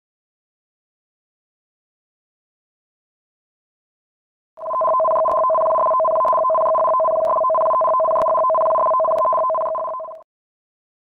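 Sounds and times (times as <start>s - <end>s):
two-tone warning alarm: 4.6s - 10.2s.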